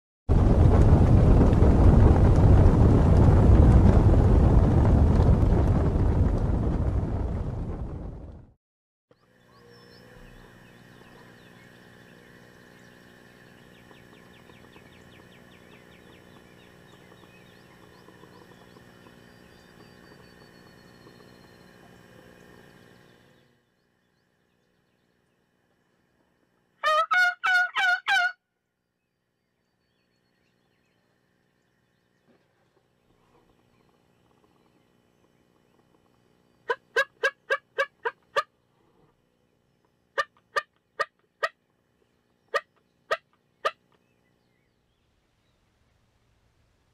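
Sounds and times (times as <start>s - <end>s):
turkey gobbling: 26.8s - 28.4s, 36.7s - 38.5s, 42.5s - 43.8s.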